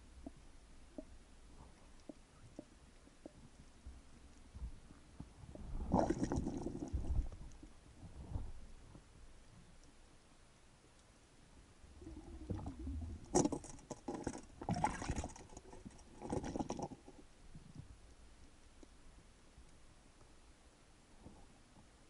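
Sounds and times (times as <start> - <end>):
underwater clicks and scraping: 0.0 - 10.0, 12.0 - 19.0.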